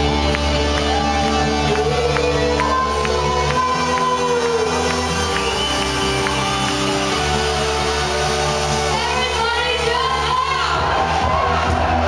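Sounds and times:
trance music: 0.0s - 12.0s.

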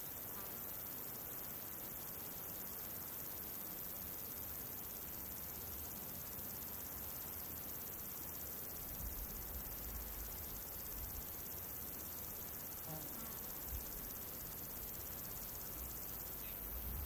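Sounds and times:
crickets chirring: 0.0s - 17.0s.

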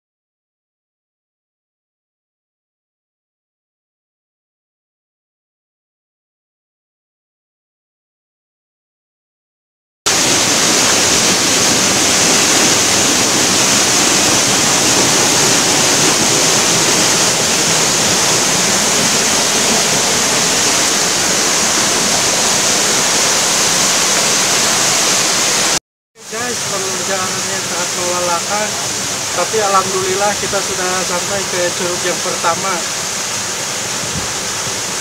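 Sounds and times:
mountain stream rushing: 10.1s - 35.0s.

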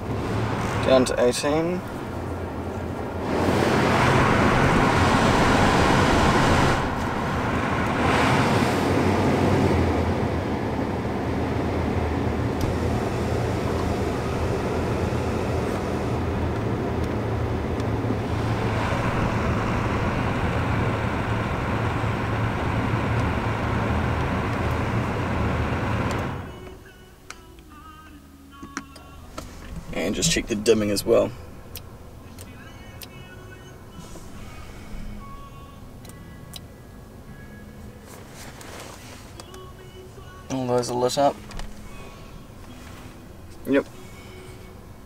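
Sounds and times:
car blower fan rushing air: 0.0s - 26.6s, 29.2s - 32.1s, 33.9s - 35.4s, 40.5s - 45.0s.

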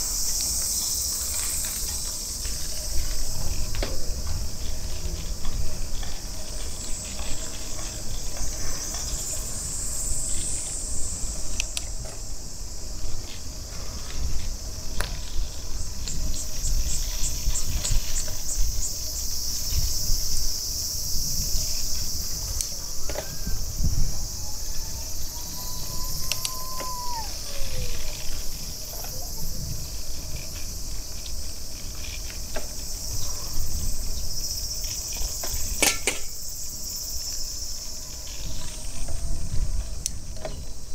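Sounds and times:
cicadas buzzing: 0.0s - 40.9s
low wind rumble: 0.0s - 40.9s
faint whistling tone: 22.9s - 28.2s.

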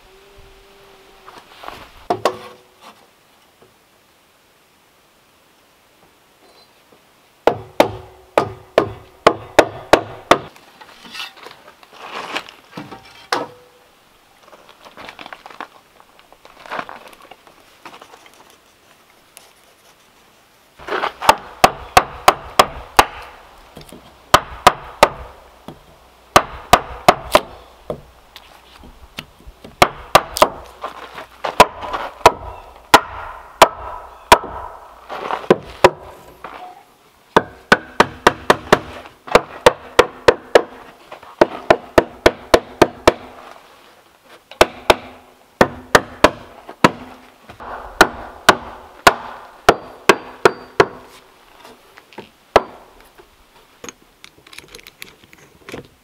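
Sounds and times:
handling and scraping: 1.2s - 3.2s, 10.5s - 21.4s, 27.6s - 29.8s, 30.6s - 32.9s, 34.8s - 36.9s, 50.7s - 56.0s
hand tool striking wood: 7.5s - 11.4s, 21.2s - 28.1s, 29.6s - 30.7s, 31.5s - 36.1s, 37.4s - 40.8s, 41.4s - 43.4s, 44.5s - 51.2s.

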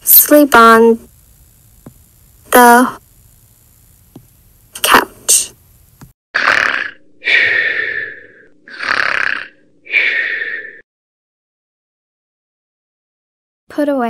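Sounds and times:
cartoon snoring: 6.4s - 10.8s.

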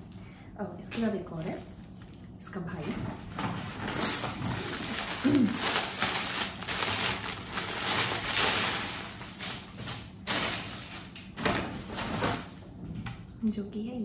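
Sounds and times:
plastic wrapping crinkling: 3.1s - 12.6s.

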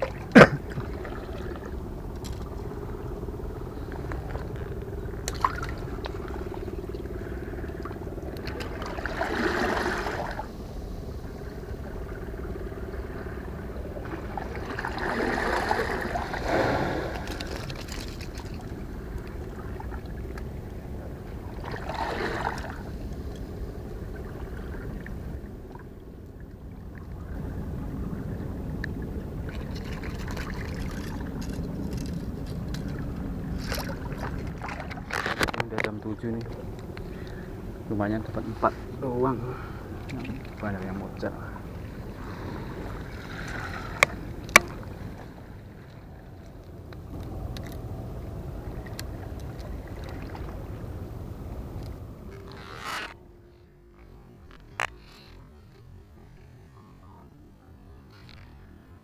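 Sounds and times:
water sloshing against a wall: 0.0s - 2.5s, 5.2s - 10.5s, 14.0s - 20.4s, 29.4s - 46.6s
steady low rumble: 0.0s - 59.0s.

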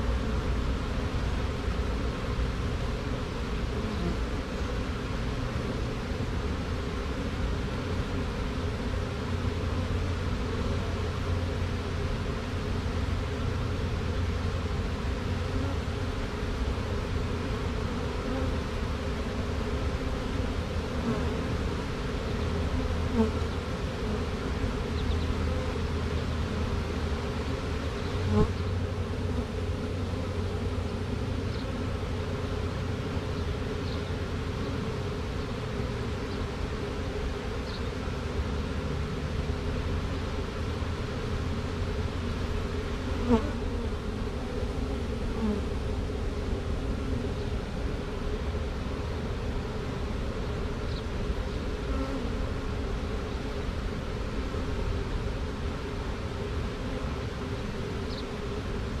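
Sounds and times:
bee swarm buzzing: 0.0s - 59.0s.

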